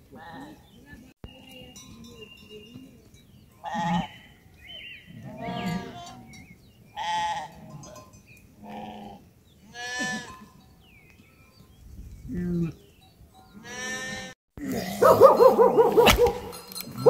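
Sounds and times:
livestock bleating: 0.1 - 0.6, 3.6 - 4.3, 5.1 - 6.4, 7.0 - 7.9, 8.6 - 10.4, 13.6 - 14.4.

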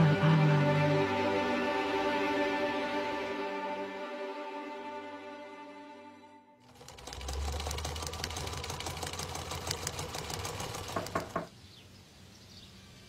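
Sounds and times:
sewing machine stitching: 6.6 - 11.5.

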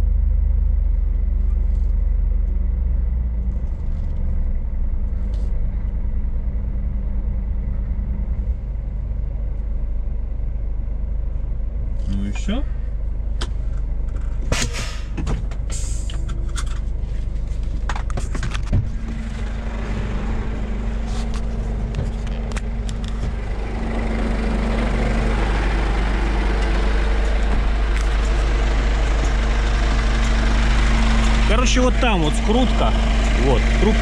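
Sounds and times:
truck diesel engine idling: 4.4 - 34.0.

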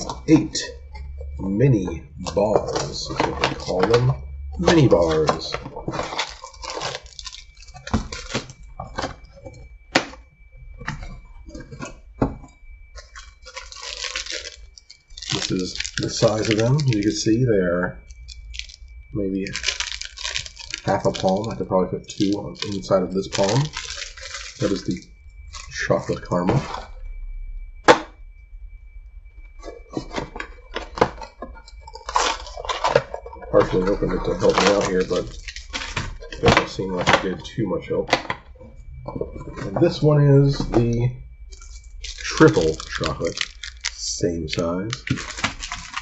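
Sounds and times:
plastic wrappers crinkling: 0.0 - 10.2, 13.0 - 26.9, 29.6 - 46.0
cardboard tearing and rubbing: 13.4 - 14.6.

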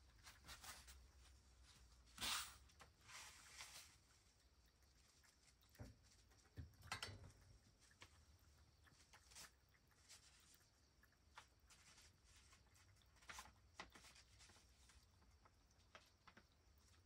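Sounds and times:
cat lapping water: 2.6 - 17.0.

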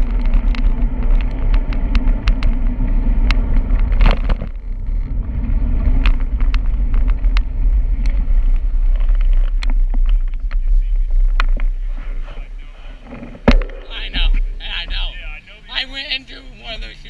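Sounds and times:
bicycle clicks and rattles: 0.0 - 10.7
wind and road noise: 0.0 - 17.0.

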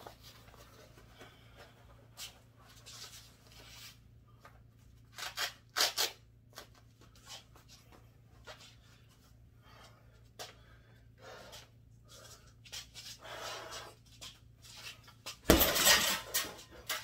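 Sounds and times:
boxing gloves rustling: 0.0 - 10.6
steady low hum: 0.0 - 17.0.

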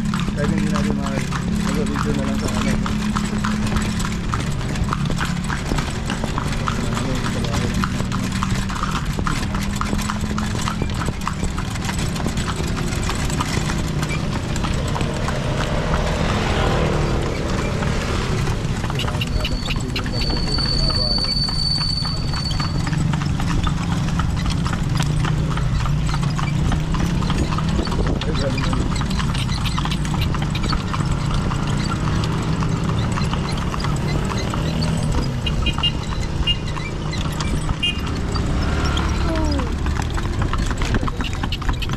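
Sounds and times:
carriage ride rumble: 0.0 - 41.9
horse hooves clip-clopping: 0.0 - 41.9.

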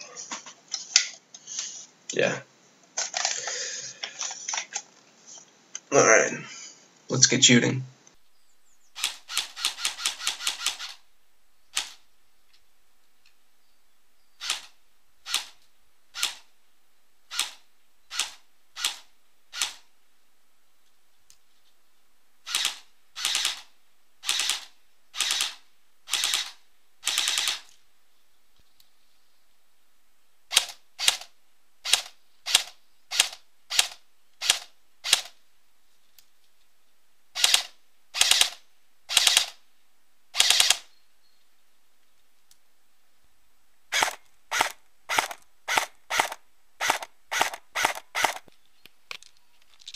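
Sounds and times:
airsoft rifle firing: 37.4 - 39.6, 40.4 - 40.9, 43.9 - 48.4.

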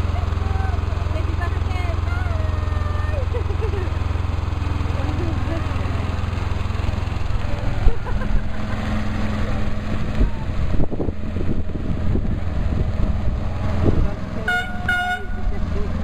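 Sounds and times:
small train engine humming: 0.0 - 16.0
train horn toot: 14.5 - 15.5.

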